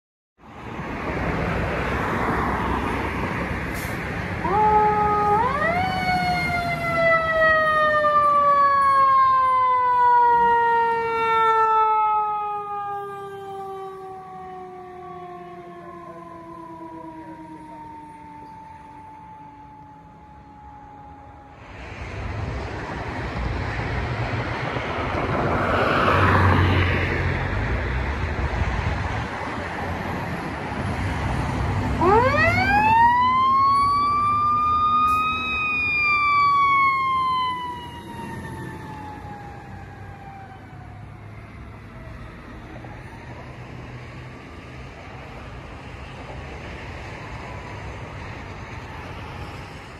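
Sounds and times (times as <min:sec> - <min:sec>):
fire truck engine: 0:00.5 - 0:49.9
siren wailing: 0:04.3 - 0:21.8, 0:31.9 - 0:43.9.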